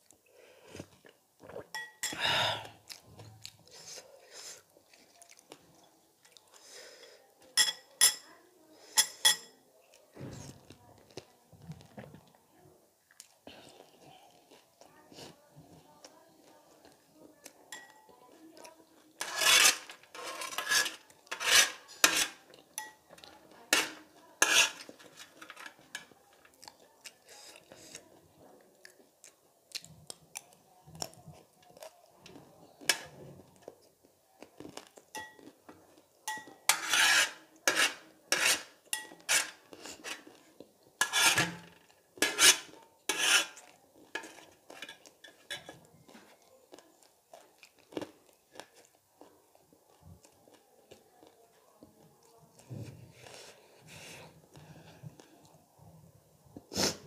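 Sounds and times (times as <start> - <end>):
metal spoon scraping metal tray: 19.2 - 23.0, 23.7 - 26.0, 36.3 - 40.3, 41.0 - 43.6, 44.2 - 45.7.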